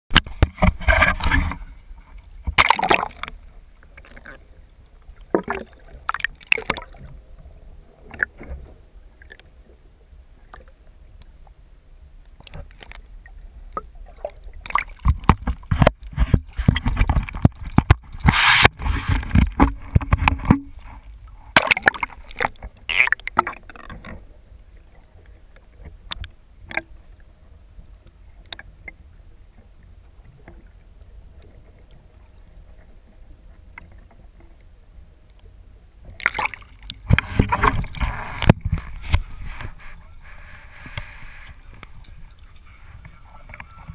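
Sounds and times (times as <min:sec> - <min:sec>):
seawater splashing: 0:00.1 - 0:09.6, 0:12.5 - 0:27.3, 0:36.0 - 0:43.9
muffled underwater knocks: 0:15.0 - 0:20.9, 0:37.0 - 0:39.9.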